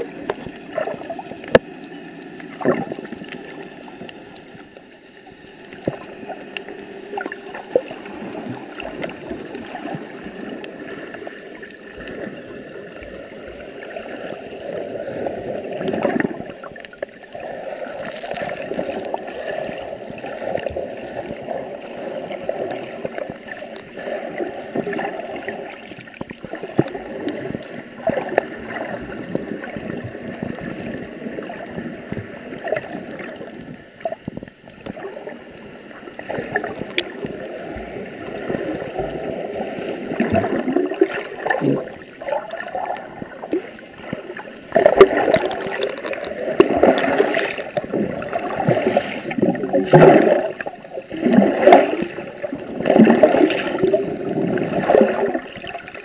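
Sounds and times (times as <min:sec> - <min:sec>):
gurgling underwater water: 0:00.0 - 0:56.0
small clicks and knocks: 0:36.7 - 0:37.1.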